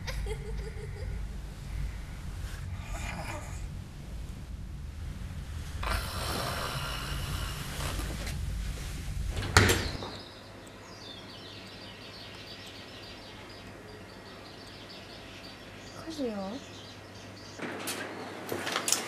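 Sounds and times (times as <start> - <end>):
bedding rustling: 0.0 - 10.3
faint high chirping ticks: 9.9 - 17.6.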